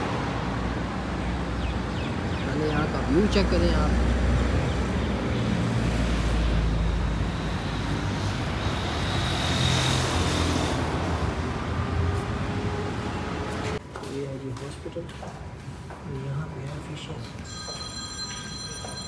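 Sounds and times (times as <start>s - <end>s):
road traffic rumble: 0.0s - 19.0s
vehicle passing loudly: 2.8s - 13.8s.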